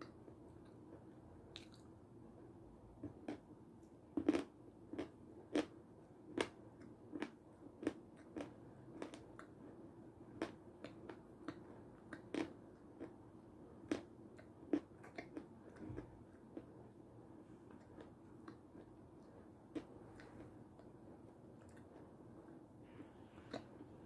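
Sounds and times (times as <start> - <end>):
wet chewing mouth clicks: 1.6 - 1.9, 13.9 - 16.1, 23.4 - 23.8.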